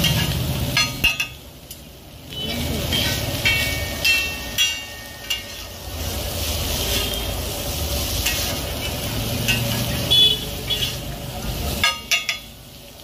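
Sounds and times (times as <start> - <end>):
metal spatula scraping on griddle: 0.0 - 1.4, 2.8 - 11.2
frying sizzle: 0.0 - 13.0
sharp ringing clanks: 3.4 - 5.7.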